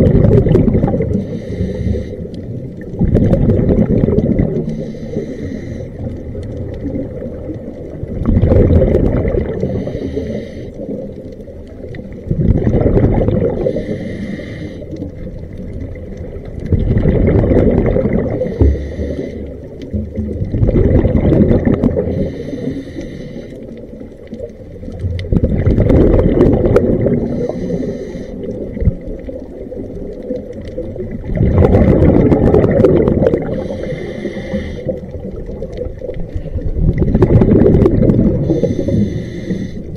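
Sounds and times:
exhaled bubbles rushing: 0.0s - 5.1s, 6.0s - 10.0s, 10.8s - 14.0s, 14.9s - 22.5s, 23.6s - 39.9s
regulator hissing inhale: 1.1s - 2.4s, 4.6s - 6.2s, 9.6s - 11.0s, 13.6s - 15.1s, 18.4s - 19.8s, 22.1s - 23.8s, 27.2s - 28.7s, 33.4s - 35.2s, 38.4s - 39.9s.

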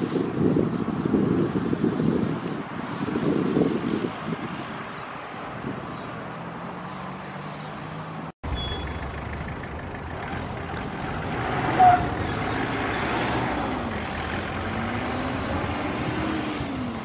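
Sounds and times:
wind buffeting microphone: 0.0s - 6.3s.

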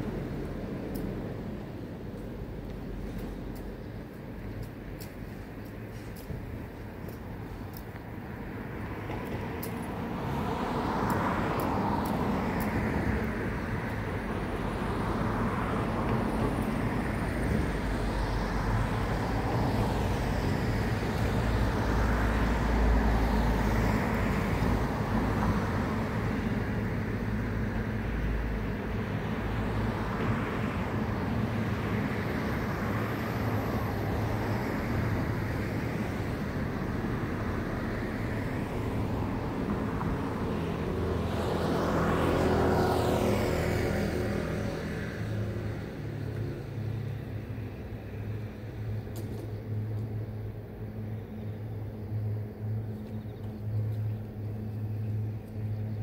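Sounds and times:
cars passing: 0.0s - 56.0s
road traffic rumble: 0.0s - 56.0s
insects chirping: 46.9s - 56.0s.

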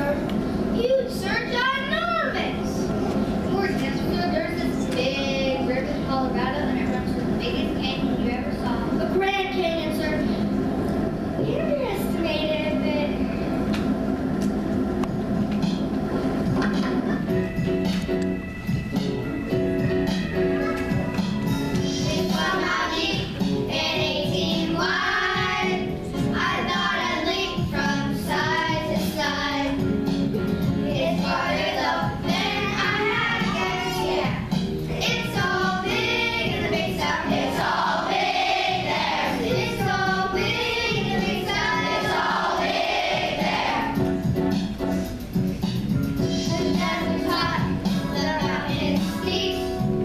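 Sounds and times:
instrumental accompaniment: 15.0s - 50.0s
children's choir singing: 20.8s - 29.8s, 30.9s - 44.0s, 46.3s - 50.0s.

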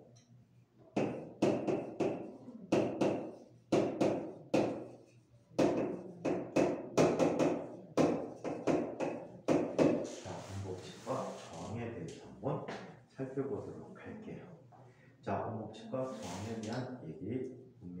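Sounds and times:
chalk tapping on blackboard: 1.0s - 10.2s.

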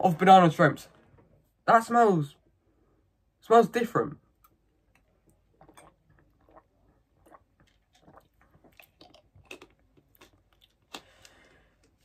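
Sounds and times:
person gulping a drink: 4.4s - 12.0s.

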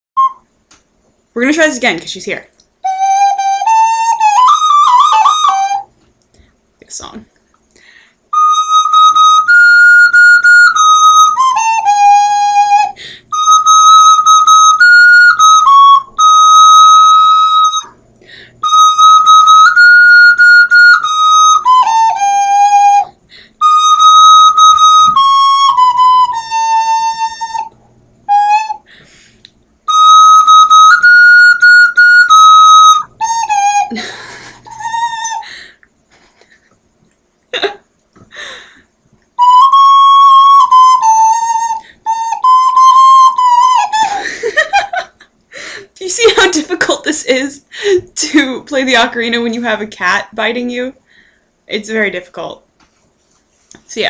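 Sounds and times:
ocarina melody: 0.2s - 0.5s, 2.8s - 6.0s, 8.3s - 35.6s, 39.4s - 44.9s.

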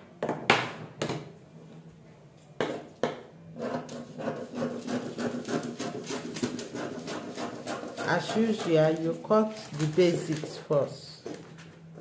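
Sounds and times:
scissors snipping paper: 4.9s - 10.9s.

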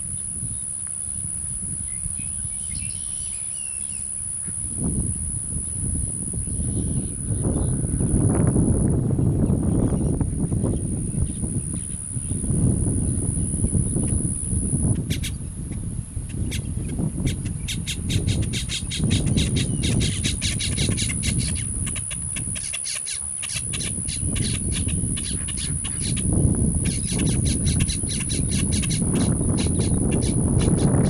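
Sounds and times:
wind rumble on microphone: 0.0s - 31.0s
bird fledgling begging calls: 1.9s - 4.6s, 9.7s - 15.4s, 16.3s - 31.0s.

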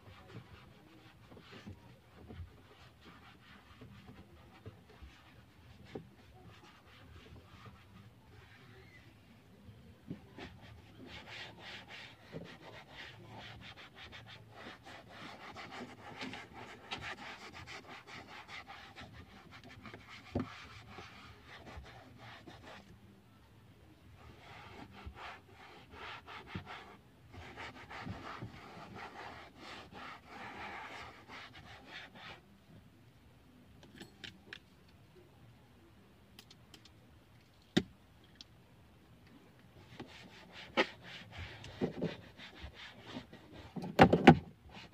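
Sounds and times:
foam pad rubbing on dashboard: 0.0s - 9.2s, 10.2s - 22.9s, 24.2s - 32.4s, 39.8s - 44.9s.

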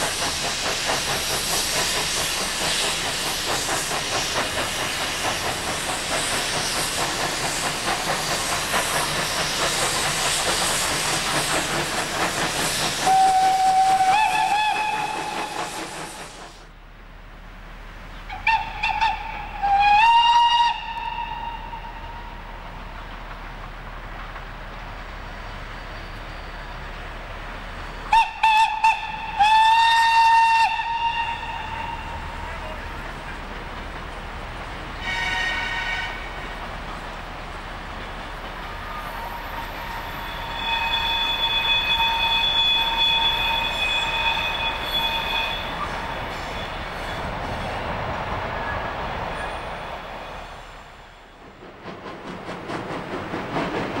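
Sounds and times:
hissing steam: 0.0s - 54.0s
steam locomotive exhaust beats: 0.0s - 54.0s
steam whistle blasts: 13.0s - 16.0s, 18.3s - 22.4s, 28.1s - 32.8s, 35.0s - 36.4s, 38.7s - 47.1s.

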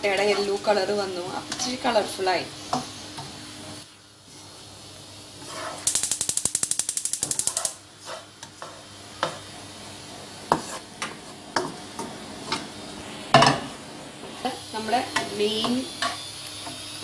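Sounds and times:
wooden spatula scraping frying pan: 5.4s - 5.8s, 8.0s - 8.9s, 10.4s - 11.8s.

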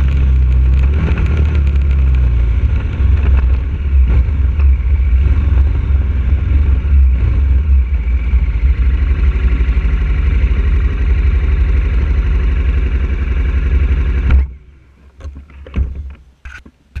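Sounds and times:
motorcycle engine idling: 5.9s - 14.3s.

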